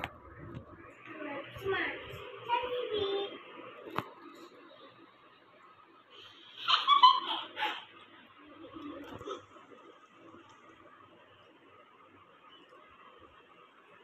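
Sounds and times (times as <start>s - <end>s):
child giggling: 6.5s - 8.0s.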